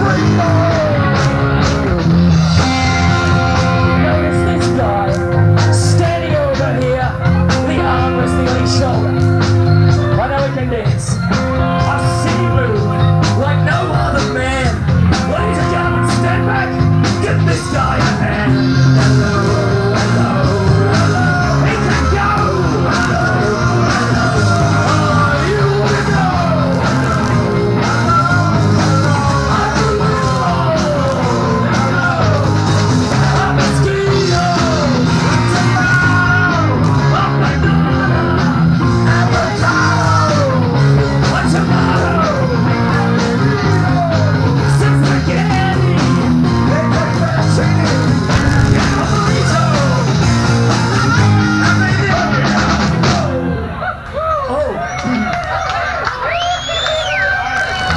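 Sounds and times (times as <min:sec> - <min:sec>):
man singing into a microphone: 0:00.0 - 0:01.7, 0:02.9 - 0:32.4
rock band playing: 0:00.0 - 0:53.9.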